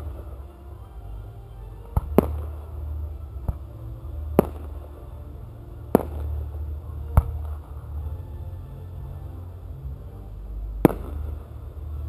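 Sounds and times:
low steady rumble: 0.0 - 12.0
firework bangs: 4.3 - 5.0, 5.9 - 7.8, 10.8 - 11.5.

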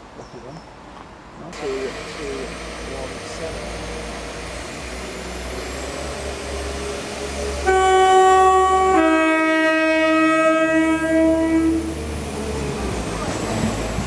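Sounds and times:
train running into platform: 0.0 - 14.0
two-tone train horn: 7.6 - 12.0.

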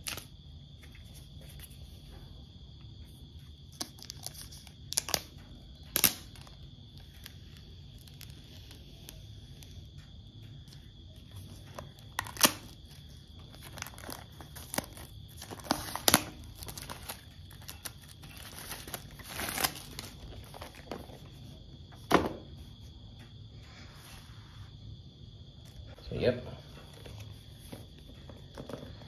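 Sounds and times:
plastic shrink-wrap crinkling: 3.6 - 9.8, 10.7 - 21.4.

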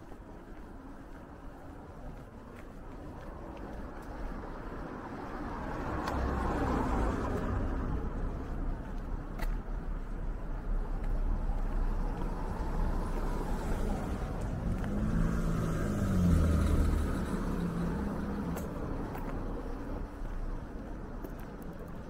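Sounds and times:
low street rumble: 0.0 - 22.0
car driving past: 11.9 - 18.8.

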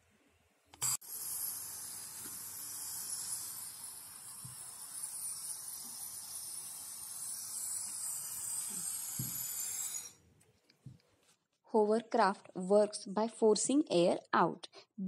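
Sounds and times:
air hissing from balloon: 0.8 - 10.2.

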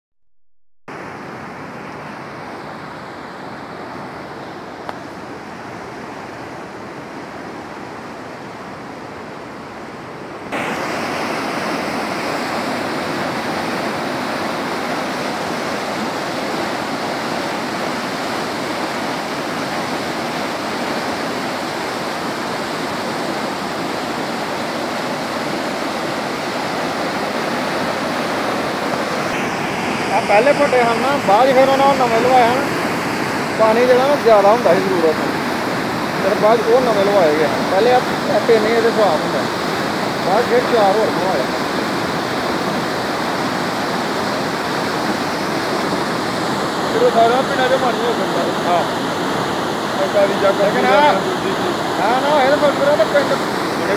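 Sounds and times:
stream water rushing: 0.9 - 53.9.

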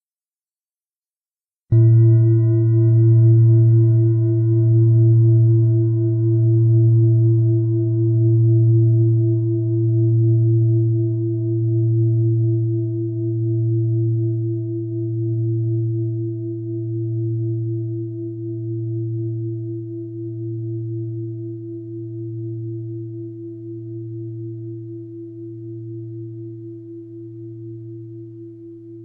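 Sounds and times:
bell ringing with low hum: 1.7 - 7.5.

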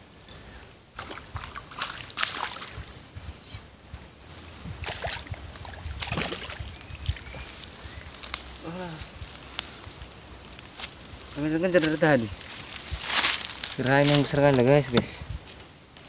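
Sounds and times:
fish splashing in water: 1.0 - 2.8, 4.8 - 7.5.

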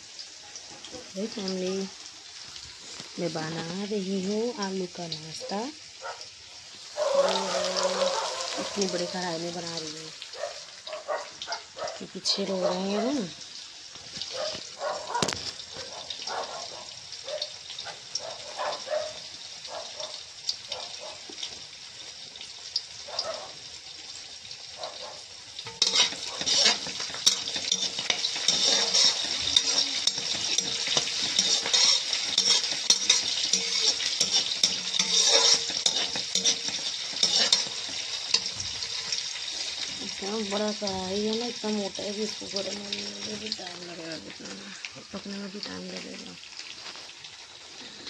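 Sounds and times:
onions sizzling in oil: 0.0 - 48.0
spatula clattering against pan: 25.7 - 38.8.

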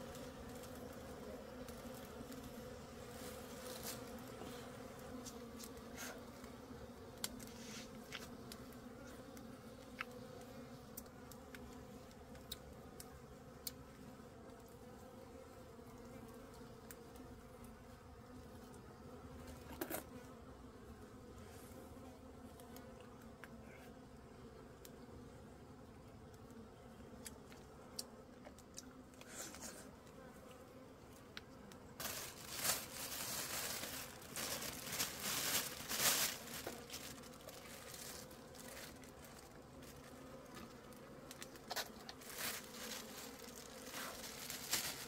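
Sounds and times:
honeybees buzzing: 0.0 - 45.0
small clicks and crackles: 7.2 - 13.8, 31.2 - 45.0.

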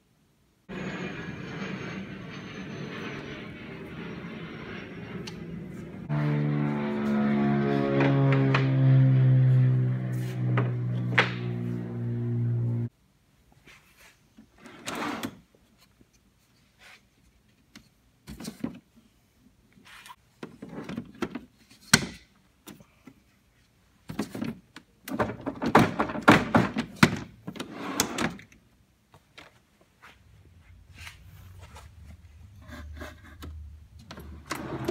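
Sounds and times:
drawers sliding out and shut: 14.6 - 15.4, 25.2 - 28.5, 34.1 - 34.9
knocking and rattling: 25.1 - 27.3.

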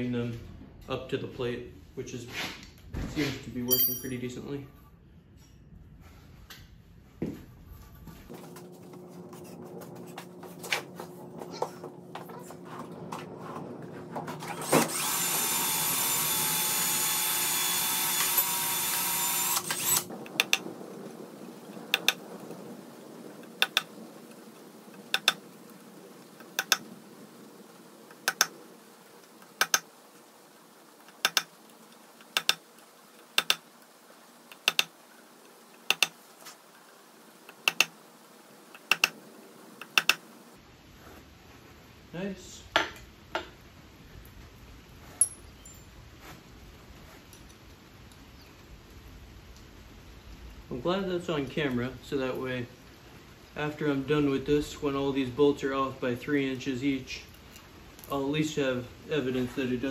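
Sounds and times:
cordless drill whining: 14.4 - 20.1
sharp clicks: 19.6 - 20.7, 21.9 - 22.2, 26.6 - 26.8, 28.2 - 28.6, 29.6 - 29.9, 31.1 - 31.5, 34.5 - 34.9, 35.9 - 36.2, 37.5 - 37.9, 38.8 - 39.2, 39.8 - 40.2.

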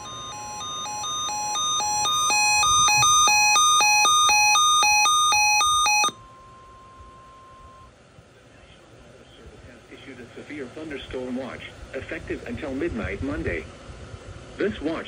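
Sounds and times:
pulsing two-tone alarm beep: 0.0 - 7.9
steady attention tone: 0.0 - 8.0.

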